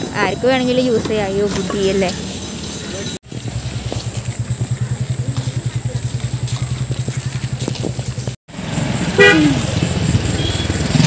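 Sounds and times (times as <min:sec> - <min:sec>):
engine running with low pulse: 0:01.0 - 0:11.0.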